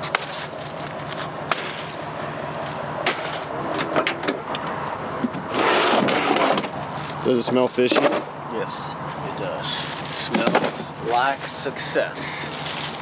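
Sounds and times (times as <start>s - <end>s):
rustling scrape: 12.4s - 13.0s.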